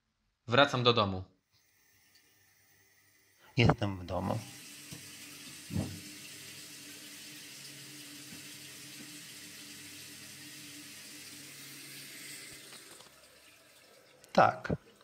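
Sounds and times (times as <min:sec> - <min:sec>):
tap water running into sink: 0:03.6 - 0:15.0.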